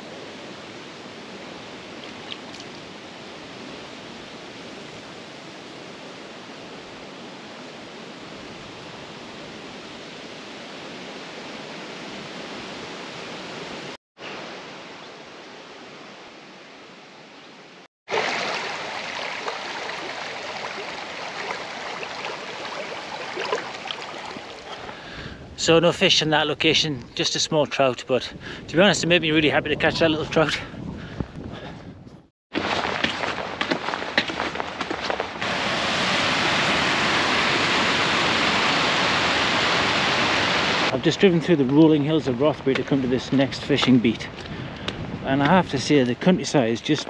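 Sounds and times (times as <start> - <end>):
river water running: 0.0 - 25.2, 32.5 - 42.5.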